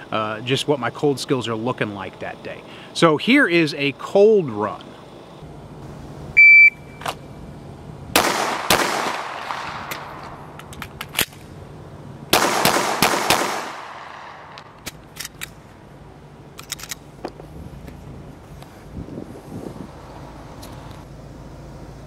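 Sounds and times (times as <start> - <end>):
handgun shots: 8.2 - 11.4, 12.4 - 15.5
gun reload clicks: 9.8 - 11.5, 14.5 - 15.6, 16.6 - 17.1.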